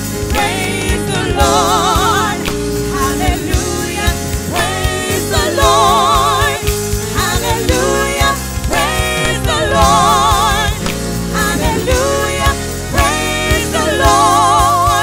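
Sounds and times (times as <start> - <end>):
drum kit: 0.0 - 15.0
keyboard: 0.0 - 15.0
women singing with vibrato: 0.2 - 15.0.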